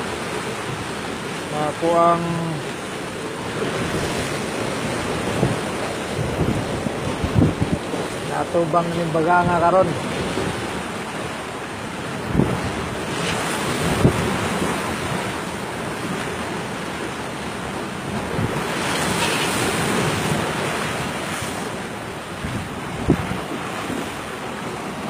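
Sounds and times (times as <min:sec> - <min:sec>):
waves splashing against boat hull: 0:00.0 - 0:25.0
wind buffeting microphone: 0:03.5 - 0:08.4, 0:10.0 - 0:25.0.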